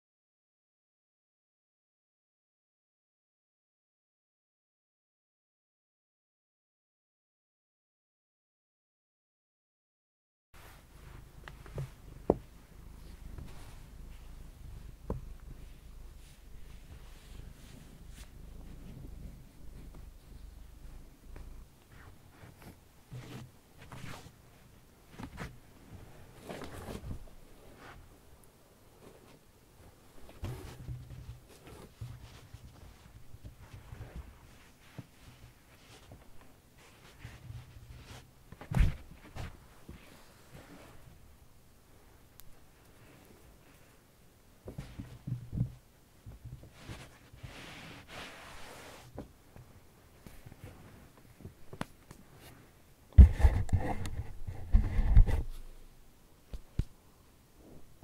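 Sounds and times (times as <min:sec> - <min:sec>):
sleeve rustling on carpet: 0:10.6 - 0:28.2, 0:29.0 - 0:41.2, 0:46.3 - 0:55.8
cat padding across carpet: 0:11.0 - 0:20.3, 0:44.6 - 0:55.8.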